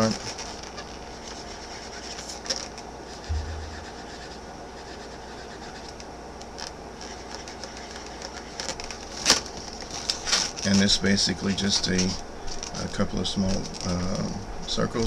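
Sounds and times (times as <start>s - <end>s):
marker scratching on balloon: 1.1s - 2.5s, 3.1s - 6.0s, 7.0s - 8.7s
low thump: 3.3s - 4.3s.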